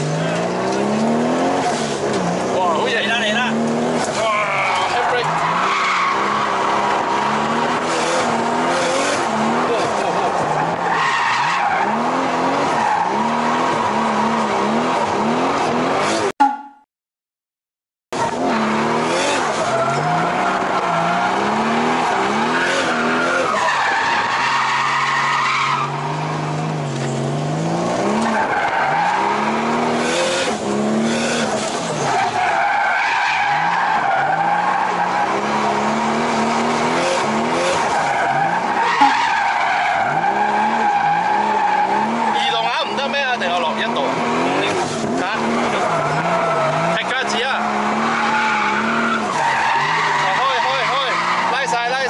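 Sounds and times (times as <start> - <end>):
car engine revving: 0.0 - 16.3, 18.2 - 52.0
tyres squealing: 19.2 - 26.2, 37.2 - 52.0.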